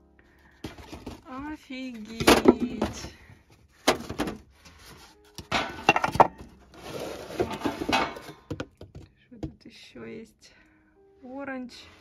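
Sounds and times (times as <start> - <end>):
plastic junk clattering: 0.4 - 9.0.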